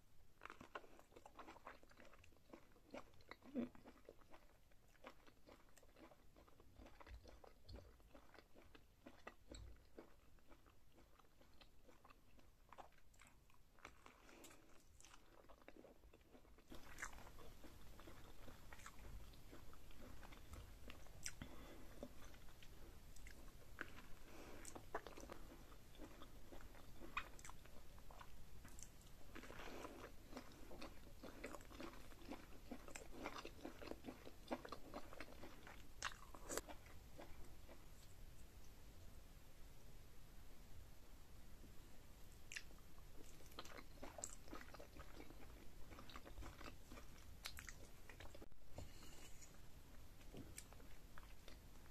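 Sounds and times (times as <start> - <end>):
wet chewing and lip smacks: 0.5 - 38.8, 42.5 - 49.6, 50.2 - 51.9
steady background hiss: 16.6 - 44.5.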